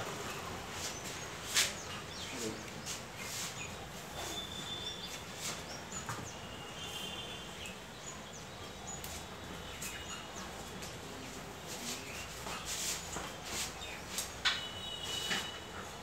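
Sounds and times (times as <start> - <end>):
faint bird chirps: 0.8 - 11.3.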